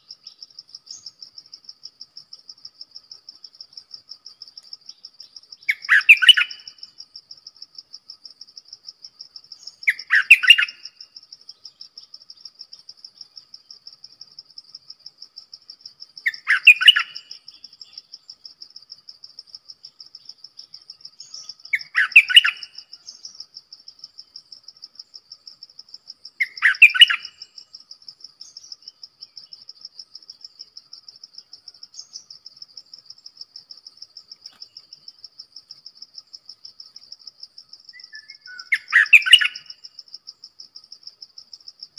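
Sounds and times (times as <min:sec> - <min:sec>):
high pulsing insect trill: 0:00.0 - 0:41.9
bulbul singing: 0:04.9 - 0:06.9, 0:09.6 - 0:11.0, 0:16.2 - 0:18.2, 0:20.4 - 0:23.5, 0:26.4 - 0:27.7, 0:37.9 - 0:39.8.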